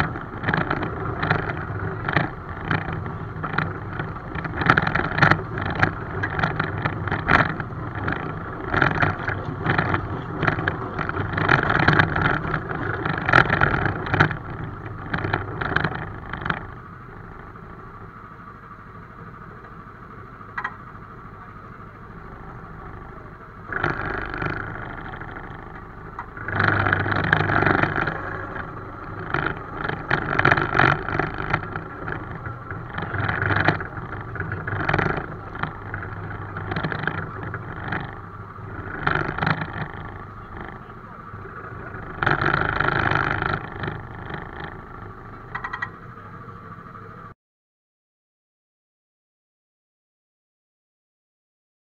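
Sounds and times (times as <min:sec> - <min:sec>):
miniature train wheels clattering: 0:00.0 - 0:17.8, 0:20.4 - 0:47.3.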